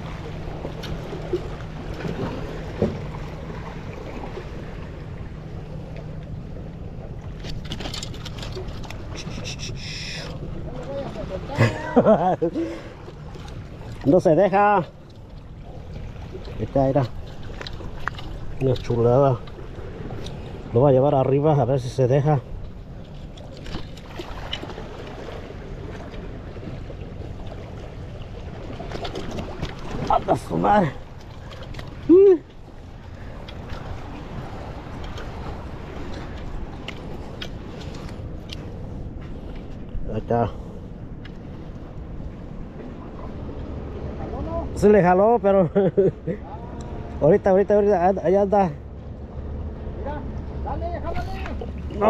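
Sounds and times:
ocean surf: 0:00.0 - 0:52.0
seawater washing against rocks: 0:07.0 - 0:45.5.

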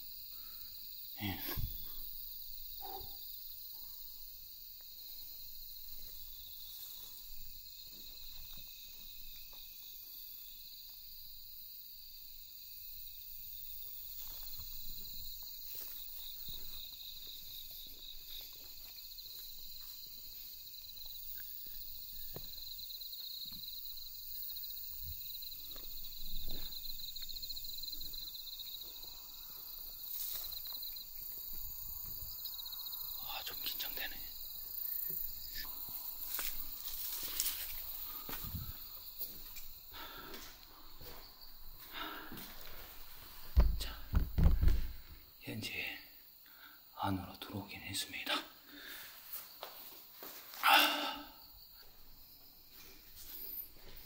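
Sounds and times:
night insects trilling: 0:00.0 - 0:54.0
faint footsteps in weeds: 0:13.8 - 0:21.6, 0:35.2 - 0:45.1.

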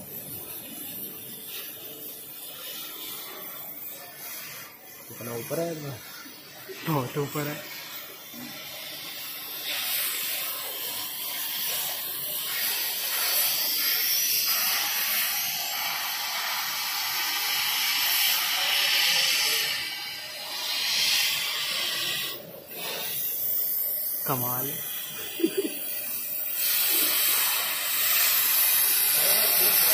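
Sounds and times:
loud steady hissing: 0:00.0 - 0:29.9.

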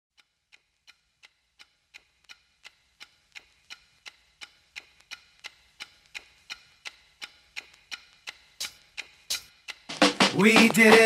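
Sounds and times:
sharp ticking with ringing tone: 0:00.1 - 0:11.0.

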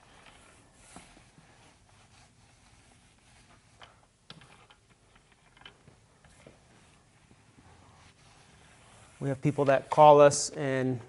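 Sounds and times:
paint roller on concrete: 0:00.0 - 0:04.6, 0:06.3 - 0:10.1.

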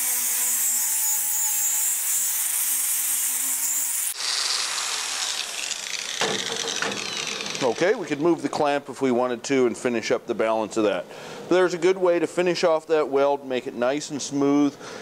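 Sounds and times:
angle grinder grinding steel: 0:00.0 - 0:08.4.

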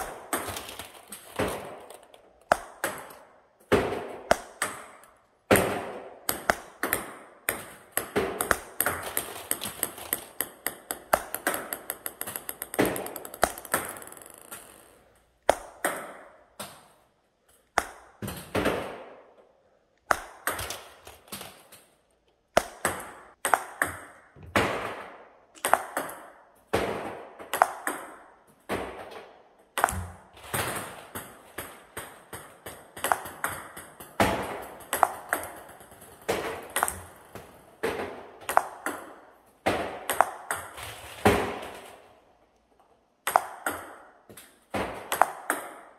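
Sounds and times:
table tennis ball clicks: 0:06.3 - 0:17.0, 0:25.6 - 0:26.4, 0:32.7 - 0:37.5, 0:38.4 - 0:39.2, 0:40.1 - 0:40.8, 0:43.3 - 0:45.9.

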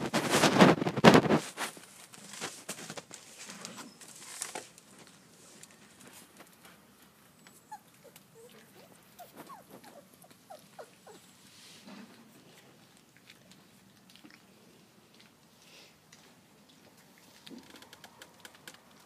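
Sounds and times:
puppies squeaking and whimpering: 0:07.4 - 0:11.4.

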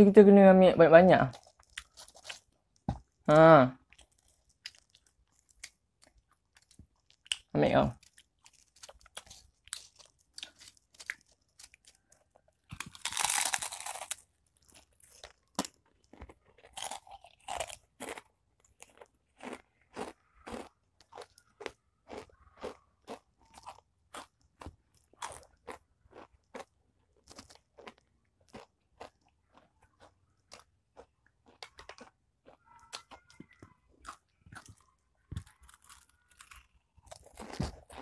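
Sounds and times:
crunching potato chips: 0:01.3 - 0:03.2, 0:03.8 - 0:38.0.

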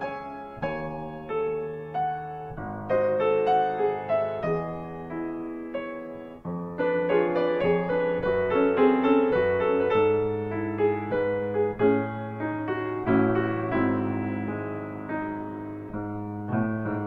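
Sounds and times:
slow piano music: 0:00.0 - 0:17.0.

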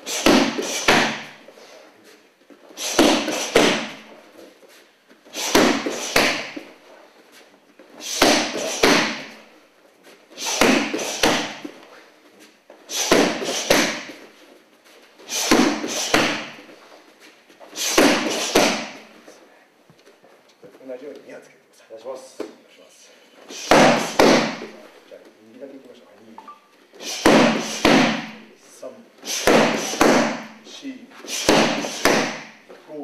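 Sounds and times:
strikes slapping kick mitts: 0:00.1 - 0:01.4, 0:02.8 - 0:04.1, 0:05.4 - 0:06.7, 0:08.0 - 0:09.4, 0:10.4 - 0:11.7, 0:12.9 - 0:14.2, 0:15.3 - 0:16.6, 0:17.8 - 0:19.0, 0:23.6 - 0:24.8, 0:27.1 - 0:28.5, 0:29.3 - 0:30.6, 0:31.3 - 0:32.6.

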